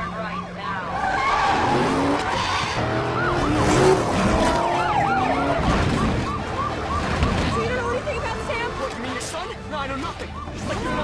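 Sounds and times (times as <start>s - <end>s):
car engines: 0.0s - 11.0s
police sirens yelping: 0.0s - 11.0s
screeching tyres: 0.7s - 9.4s.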